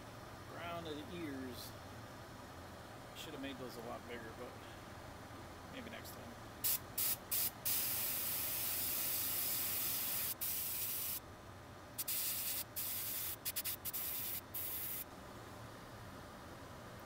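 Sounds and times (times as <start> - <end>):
airbrush spraying hiss: 6.6 - 11.2, 12.0 - 15.1.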